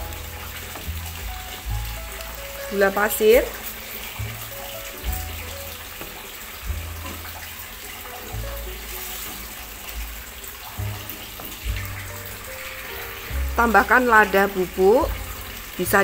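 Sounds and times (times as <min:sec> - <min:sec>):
spatula stirring: 0:00.0 - 0:15.8
background music: 0:00.0 - 0:16.0
sauce bubbling and sizzling in pan: 0:00.0 - 0:16.0.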